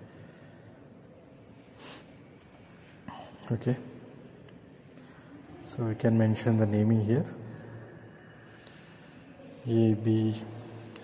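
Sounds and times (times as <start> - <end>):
room hum and hiss: 0.0 - 11.0
person sniffing: 1.7 - 2.2.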